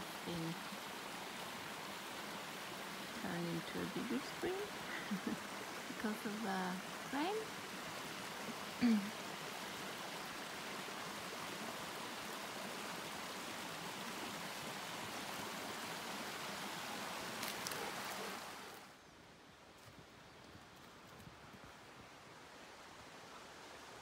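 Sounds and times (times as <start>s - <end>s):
stream water running over rocks: 0.0s - 19.0s.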